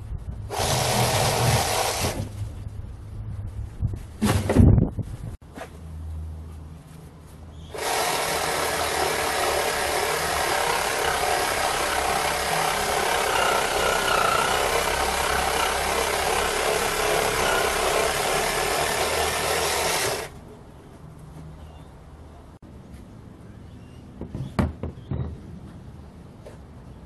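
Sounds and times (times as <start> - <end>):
reciprocating saw cutting wood: 0.5 - 2.3, 7.7 - 20.4.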